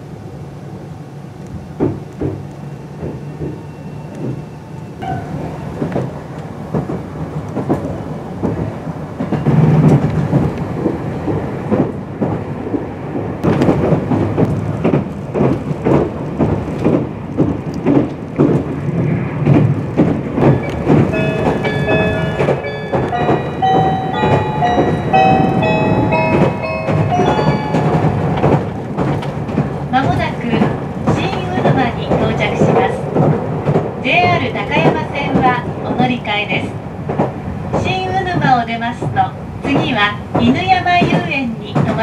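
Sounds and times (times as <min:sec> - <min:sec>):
train cabin rumble: 0:00.0 - 0:42.0
wheels clattering over rail joints: 0:05.8 - 0:36.1.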